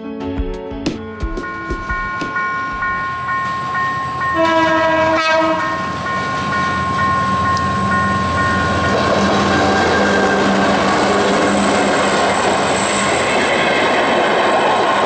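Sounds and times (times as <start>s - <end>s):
crossing warning bell ringing: 1.1s - 13.4s
diesel train rumbling: 1.4s - 15.0s
train horn blast: 4.4s - 5.8s.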